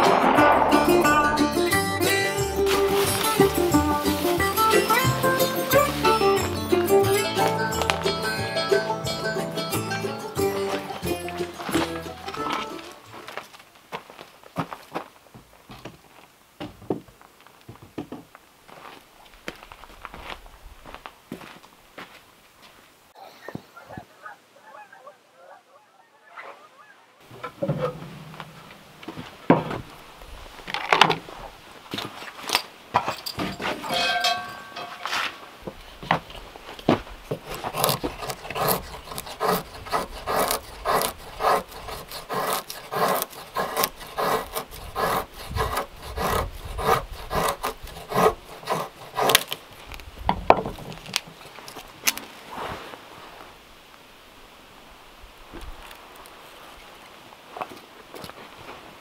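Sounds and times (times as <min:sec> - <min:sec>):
knocks and handling sounds: 0:27.3 - 0:30.0, 0:30.6 - 0:38.8, 0:49.2 - 0:52.3
knife shaving wood: 0:37.2 - 0:50.1.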